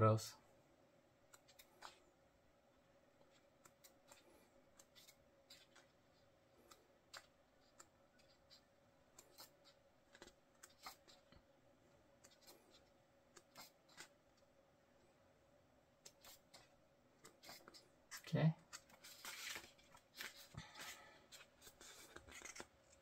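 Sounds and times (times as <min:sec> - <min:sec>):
faint steady hum: 0:00.0 - 0:23.0
book pages turning: 0:18.7 - 0:23.0.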